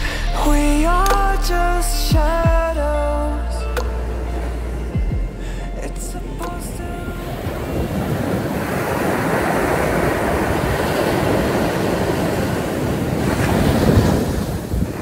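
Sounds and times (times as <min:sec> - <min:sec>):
surf washing up shore: 0:03.8 - 0:15.0.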